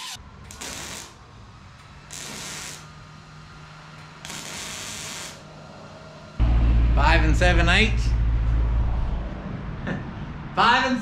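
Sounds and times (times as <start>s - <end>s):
welding crackling hiss: 0.0s - 1.2s, 2.1s - 2.9s, 4.2s - 5.5s
low steady hum: 6.4s - 9.8s.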